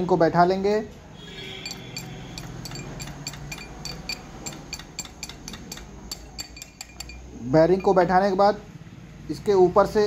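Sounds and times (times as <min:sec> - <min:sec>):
steel pipe tapping metal: 0:01.6 - 0:08.0.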